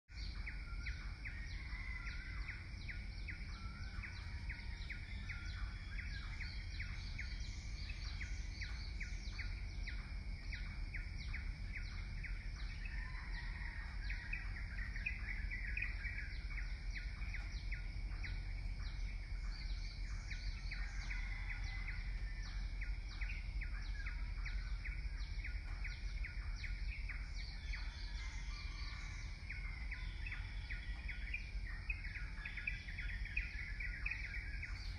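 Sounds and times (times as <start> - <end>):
small birds chirping: 0.1 - 34.9
low steady rumble: 0.2 - 34.9.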